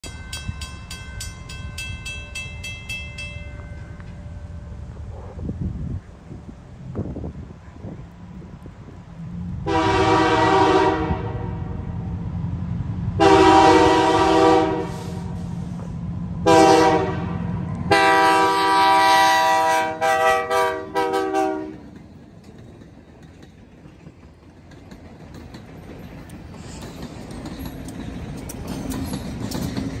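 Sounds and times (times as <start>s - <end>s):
locomotive engine rumble: 0.0s - 30.0s
locomotive horn blasts: 9.6s - 12.0s, 13.2s - 15.5s, 16.4s - 21.8s.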